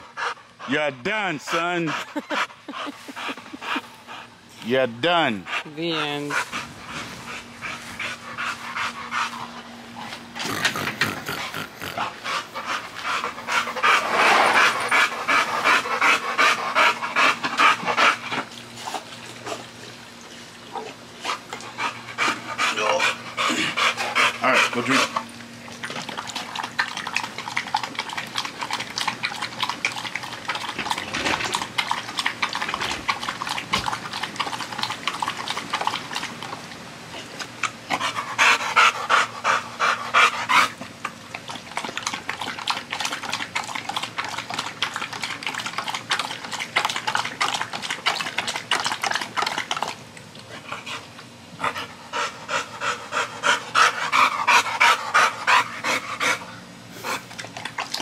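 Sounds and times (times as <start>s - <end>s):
dog panting: 0.0s - 19.6s, 21.2s - 25.3s, 37.6s - 40.8s, 50.5s - 58.0s
dog lapping water: 0.0s - 58.0s.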